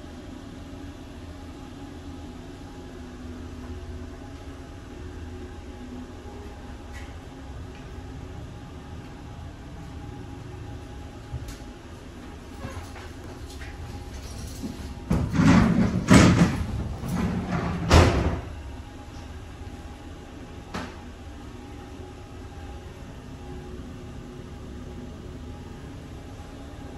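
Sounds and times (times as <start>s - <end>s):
train rumbling: 6.1s - 18.7s
door clattering and banging shut: 14.2s - 18.5s.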